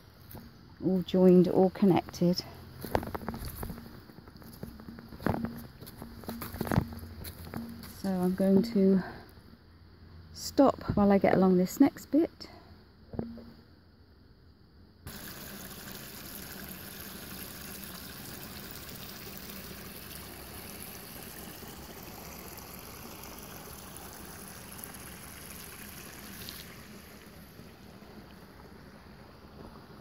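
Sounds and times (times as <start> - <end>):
creek water running over rocks: 0.3 - 8.9, 15.1 - 30.0.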